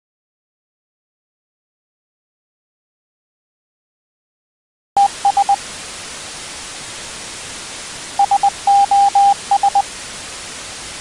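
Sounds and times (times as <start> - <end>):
morse code beeps: 5.0 - 5.6, 8.2 - 9.8
static hiss: 5.0 - 11.0.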